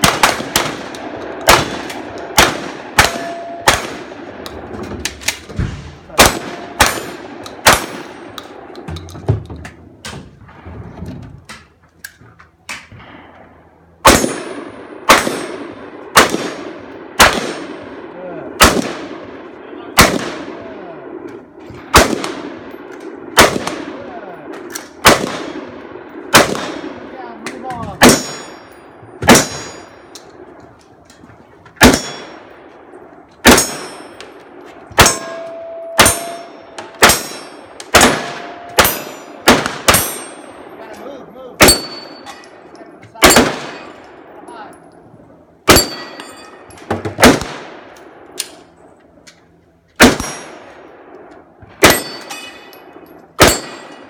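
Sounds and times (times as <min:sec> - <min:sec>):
gunshots: 0:00.0 - 0:08.8, 0:14.0 - 0:30.6, 0:31.8 - 0:40.8, 0:41.5 - 0:44.4, 0:45.6 - 0:48.7, 0:50.0 - 0:51.1, 0:51.8 - 0:52.6, 0:53.4 - 0:54.0
bullets clanging on steel targets: 0:03.0 - 0:03.8, 0:27.5 - 0:30.3, 0:31.8 - 0:32.5, 0:33.5 - 0:34.4, 0:35.0 - 0:45.0, 0:45.7 - 0:47.2, 0:51.8 - 0:54.0.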